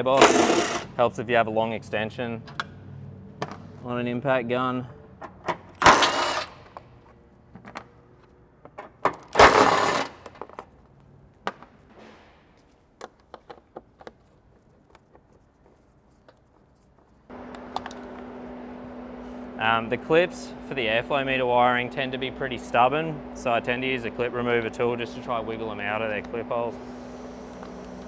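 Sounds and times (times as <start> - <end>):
steady hum: 17.3 - 28.0.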